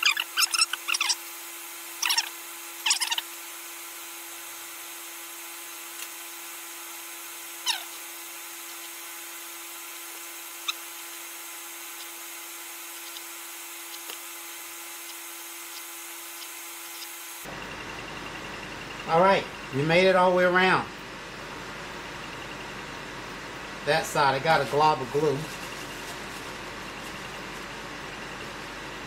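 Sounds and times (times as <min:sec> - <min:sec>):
short falling squeak: 0:00.0 - 0:01.2, 0:02.0 - 0:03.3
low hum with hiss: 0:00.0 - 0:29.0.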